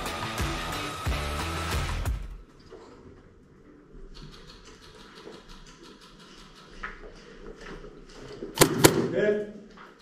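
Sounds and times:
airsoft gun shots: 8.6 - 9.2.

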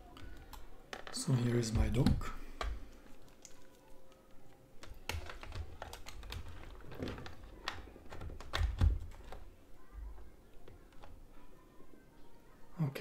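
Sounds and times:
plastic clicks and knocks: 4.8 - 9.5.

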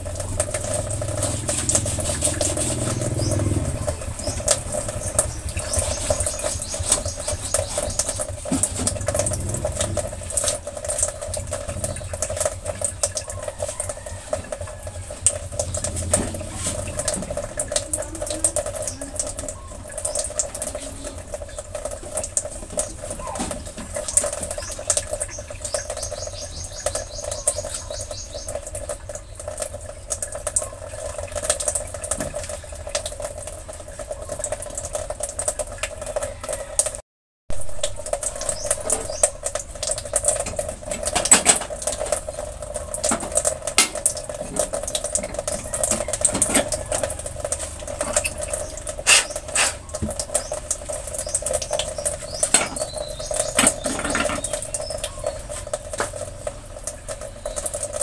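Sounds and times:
pot simmering and bubbling: 0.0 - 58.0
stove burner hum: 37.9 - 57.6.

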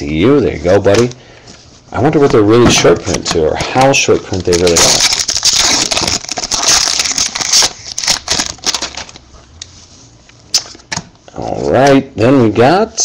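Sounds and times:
foil wrapper tearing and crinkling: 3.7 - 9.2.

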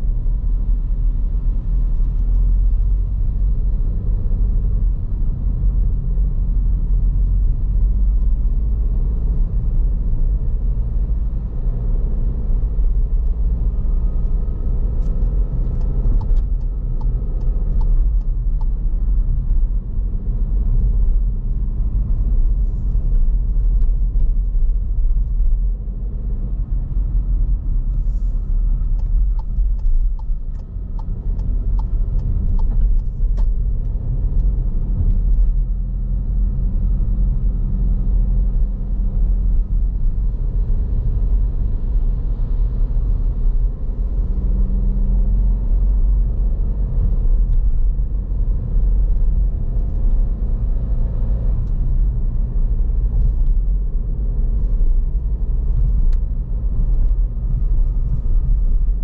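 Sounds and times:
car engine and road rumble: 0.0 - 59.0.

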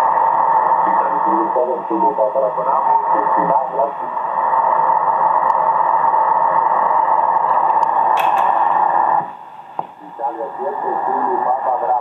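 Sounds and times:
radio static hiss: 0.1 - 5.3, 8.5 - 12.0.

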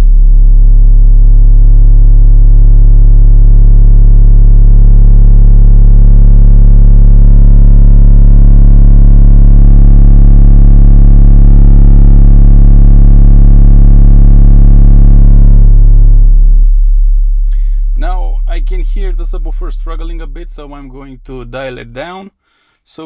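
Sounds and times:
deep test tone through subwoofer: 0.0 - 23.0.

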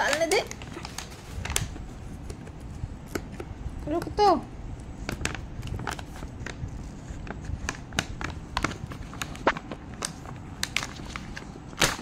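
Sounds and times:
plastic packet crinkling: 0.0 - 2.3, 4.9 - 12.0.

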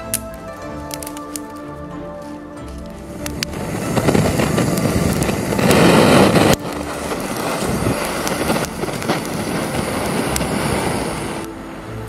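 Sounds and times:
gas torch flame hissing: 3.2 - 11.5.

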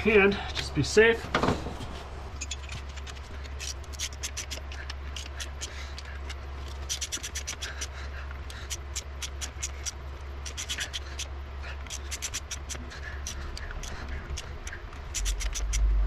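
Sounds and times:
steady low hum: 0.0 - 16.0
hand ratchet clicking: 2.4 - 16.0.

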